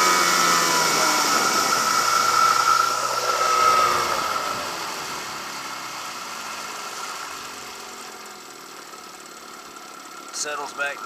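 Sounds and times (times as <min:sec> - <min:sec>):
outboard motor slowing to idle: 0:03.6 - 0:11.0.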